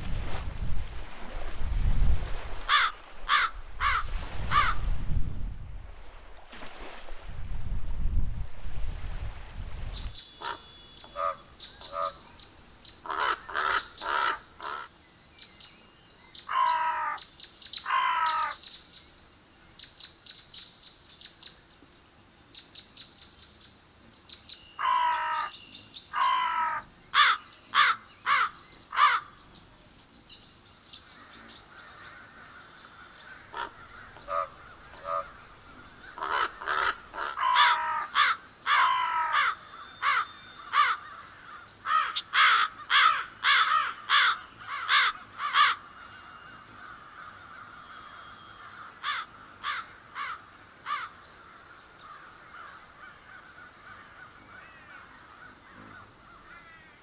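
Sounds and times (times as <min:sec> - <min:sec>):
crows cawing: 0:02.7 - 0:04.8, 0:10.4 - 0:12.2, 0:13.0 - 0:14.9, 0:16.5 - 0:17.2, 0:17.8 - 0:18.6, 0:24.8 - 0:25.5, 0:26.1 - 0:29.4, 0:31.2 - 0:57.0.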